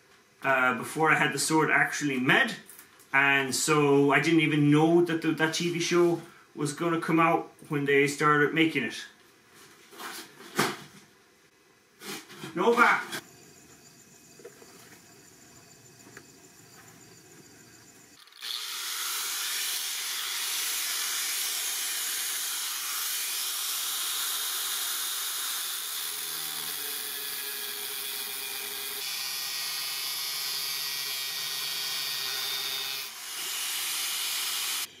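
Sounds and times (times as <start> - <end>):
angle grinder cutting steel: 15.0 - 34.9.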